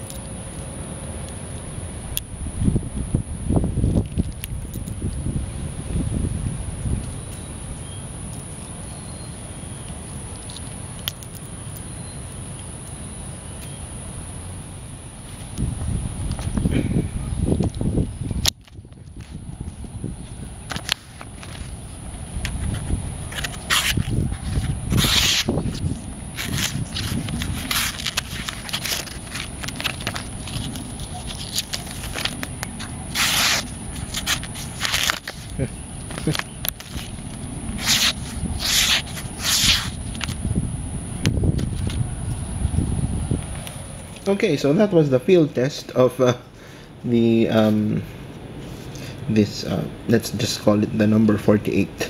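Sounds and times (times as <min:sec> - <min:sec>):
insects droning: 0:00.0 - 0:52.0
wind rumble on microphone: 0:01.4 - 0:11.0, 0:14.2 - 0:44.2
paper crackling: 0:20.7 - 0:40.4
knife slicing paper: 0:23.3 - 0:35.6, 0:36.2 - 0:40.3.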